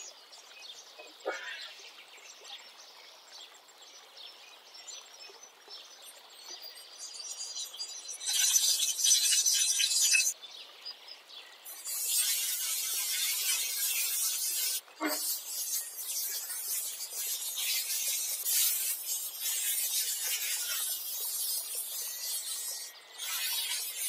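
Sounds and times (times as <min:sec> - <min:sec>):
faint bird chirps: 0:00.0 - 0:10.4
crackling sizzle: 0:06.1 - 0:10.4, 0:11.6 - 0:24.0
chicken sizzling in hot pot: 0:11.7 - 0:24.0.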